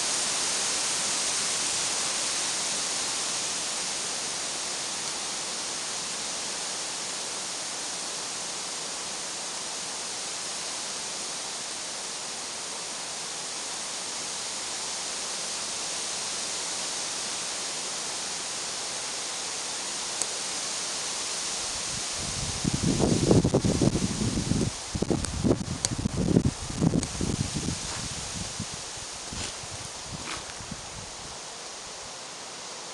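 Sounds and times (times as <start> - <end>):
wind through pine trees: 0.0 - 32.9.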